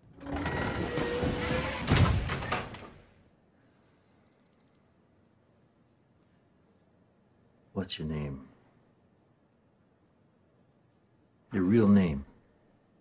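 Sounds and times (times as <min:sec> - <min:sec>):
heavy metal door sliding: 0:00.0 - 0:03.0
loud door clunk: 0:00.2 - 0:03.0.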